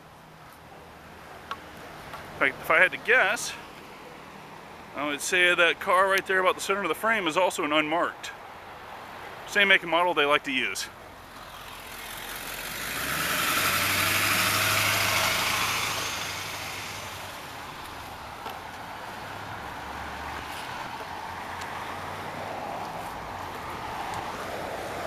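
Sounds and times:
low traffic hum: 0.0s - 25.0s
car passing close by: 11.3s - 18.2s, 18.9s - 25.0s.

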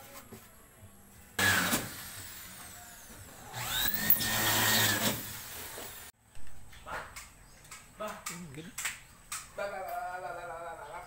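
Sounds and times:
power drill running: 3.4s - 6.1s.

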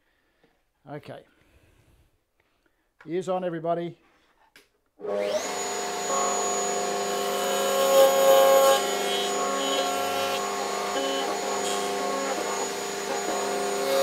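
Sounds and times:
router whining: 5.0s - 14.0s.

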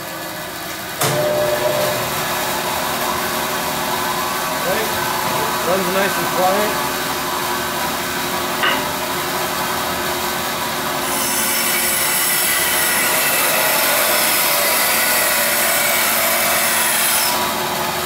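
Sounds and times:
band saw running: 0.0s - 18.0s.

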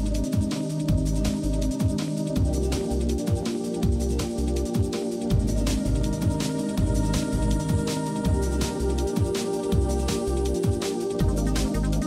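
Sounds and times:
electronic music with drum beat: 0.0s - 12.0s
sliding bass notes: 11.2s - 12.0s.

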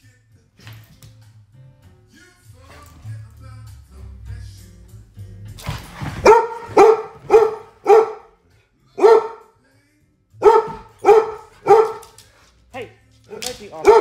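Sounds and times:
dog barking: 6.2s - 8.4s, 9.0s - 9.5s, 10.4s - 12.2s, 13.7s - 14.0s.

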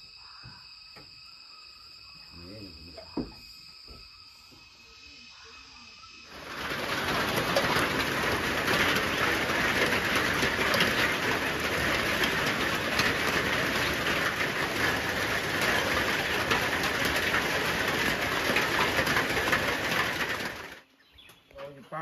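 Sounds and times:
rain on roof and leaves: 6.2s - 20.9s.

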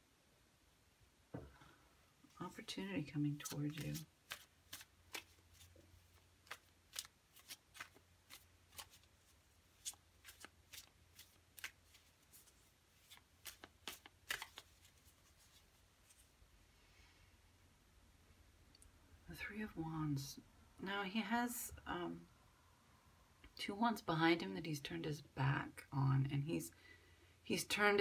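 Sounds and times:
cards being shuffled: 3.3s - 16.3s.

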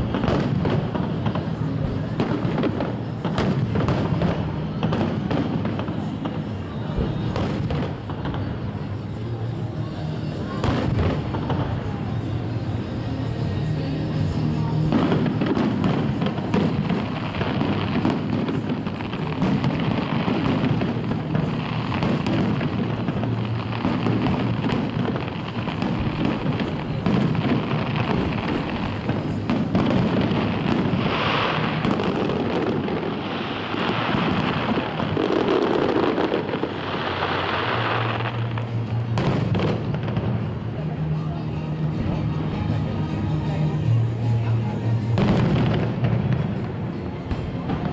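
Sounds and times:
firework shells bursting and crackling: 0.0s - 41.3s
music playing: 33.2s - 47.9s.

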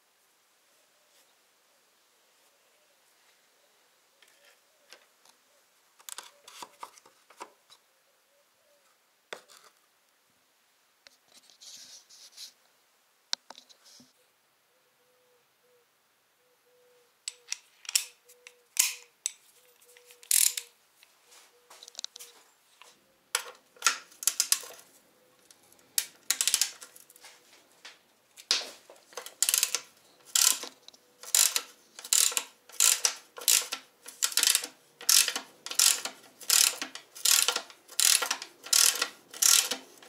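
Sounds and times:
tools and parts clicking: 6.0s - 7.5s, 17.3s - 20.7s, 23.3s - 27.2s, 28.4s - 40.0s.

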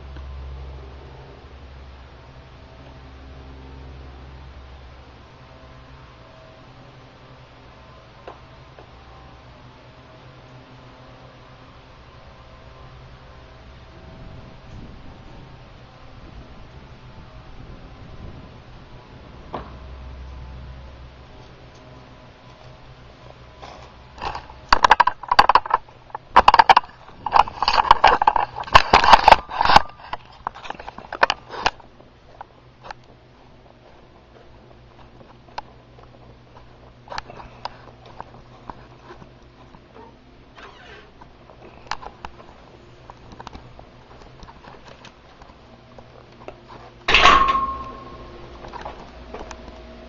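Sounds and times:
loud metallic clank ringing: 47.1s - 48.4s.

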